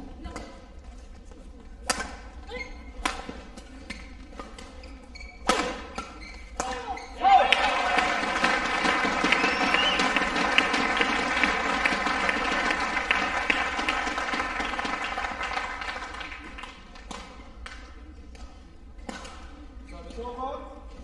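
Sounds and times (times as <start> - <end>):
spectators applauding: 7.2 - 16.8.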